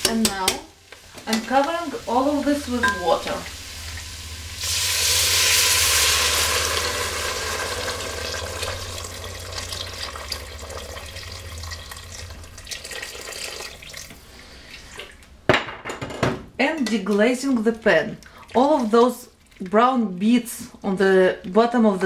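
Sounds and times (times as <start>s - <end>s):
water pouring into metal pot: 3.9s - 14.1s.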